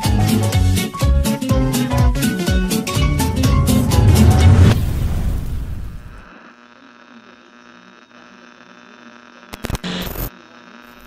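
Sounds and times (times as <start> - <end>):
low electronic hum: 1.8 - 6.3
crackling static bursts: 4.6 - 6.6, 7.3 - 10.3.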